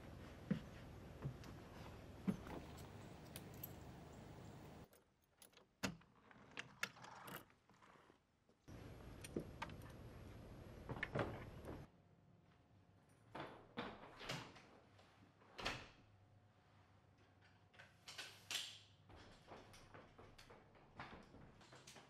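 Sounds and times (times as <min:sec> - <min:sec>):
keys jangling: 0:02.3 - 0:05.0.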